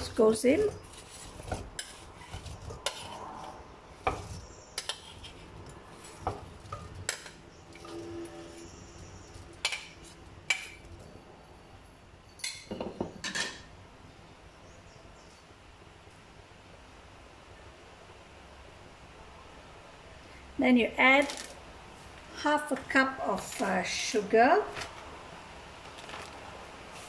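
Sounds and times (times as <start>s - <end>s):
metal spoon scraping and tapping bowl: 0.9s - 3.2s, 4.0s - 8.7s.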